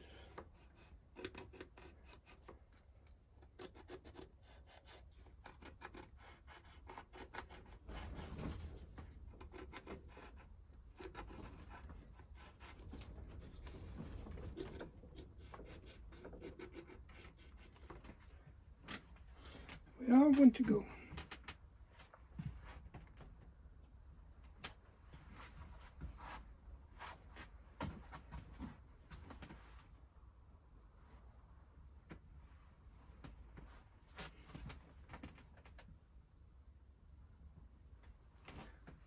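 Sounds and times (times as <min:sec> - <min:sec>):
pencil scratching on wood: 0:00.0 - 0:18.4.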